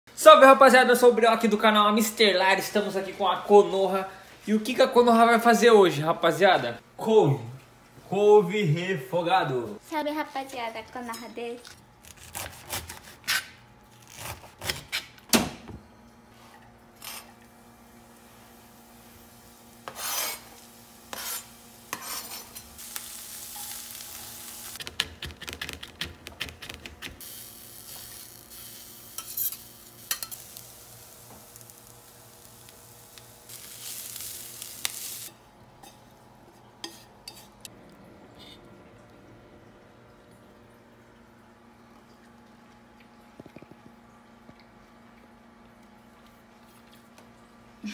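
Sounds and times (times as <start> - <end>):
hissing sizzle in pan: 17.0 - 24.8, 27.2 - 35.4.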